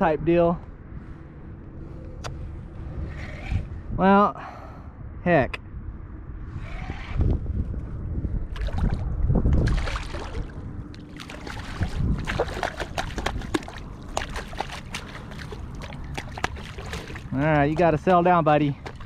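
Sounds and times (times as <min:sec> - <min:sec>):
water sloshing: 0:08.5 - 0:19.0
fish thrashing with sharp splashes: 0:09.6 - 0:18.1, 0:18.7 - 0:19.0.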